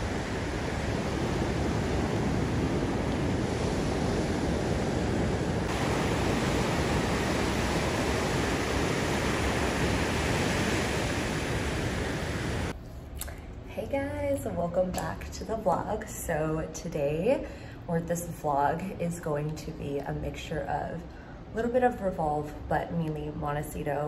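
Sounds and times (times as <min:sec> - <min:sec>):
waves breaking on beach: 0:00.0 - 0:12.7.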